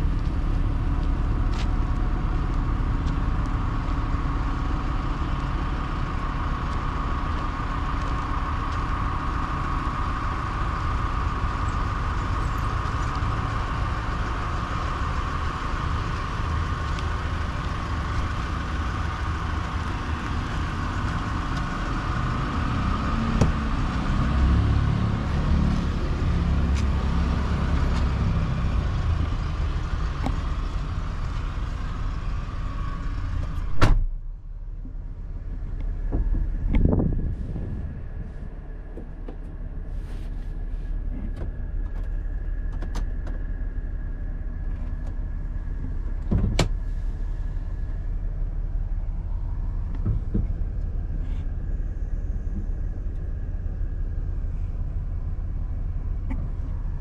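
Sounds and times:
van engine idling: 0.0s - 57.0s
wind buffeting microphone: 36.1s - 39.2s.

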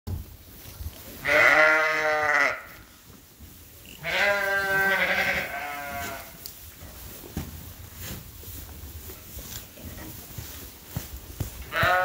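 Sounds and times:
sheep bleating: 1.2s - 2.8s, 3.9s - 6.3s, 11.7s - 12.0s.

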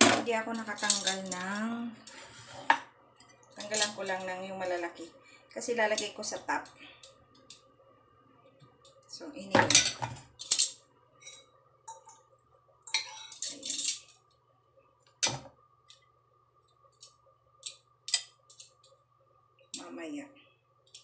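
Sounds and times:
metal tongs clinking on ceramic bowl: 0.7s - 1.6s, 3.6s - 4.0s, 12.9s - 14.1s.

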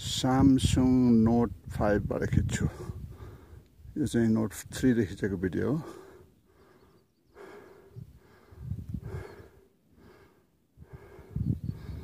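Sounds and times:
person breathing hard: 2.9s - 3.6s, 5.8s - 12.0s.

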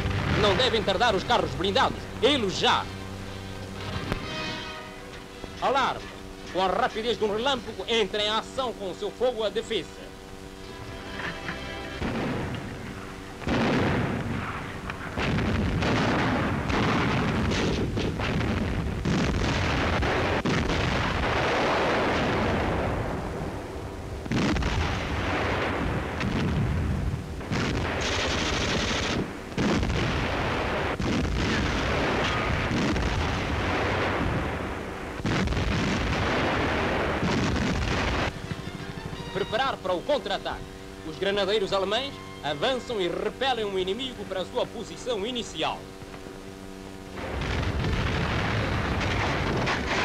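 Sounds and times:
explosions: 0.0s - 2.9s, 12.0s - 40.4s, 47.1s - 50.0s
machine-gun fire: 0.0s - 4.9s, 12.0s - 23.4s, 24.2s - 39.8s, 47.2s - 50.0s.

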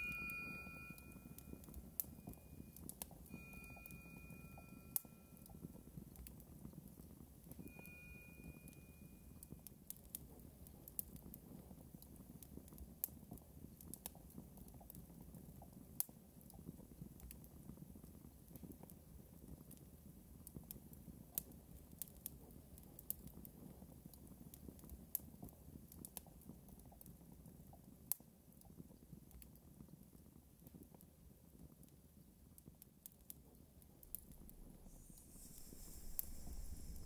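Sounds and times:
faint low hum: 33.4s - 37.0s.

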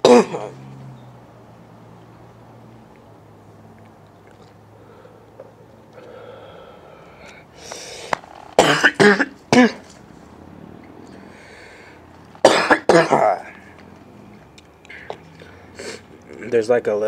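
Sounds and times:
man coughing hard: 0.0s - 0.6s, 8.6s - 9.9s, 12.4s - 13.5s
man breathing raspily: 4.7s - 8.2s, 11.1s - 12.2s.

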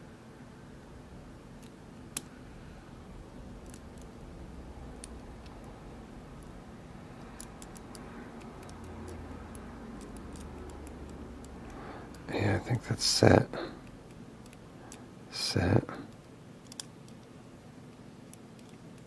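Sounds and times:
lock pick metallic ticks: 7.2s - 12.3s, 16.6s - 17.2s.

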